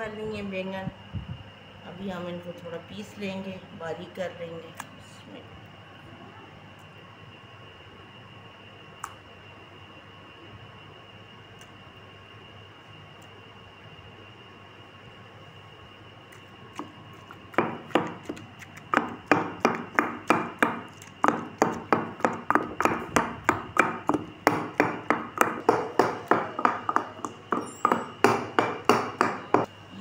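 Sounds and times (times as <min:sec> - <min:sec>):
pestle pounding in stone mortar: 0:17.2 - 0:29.7.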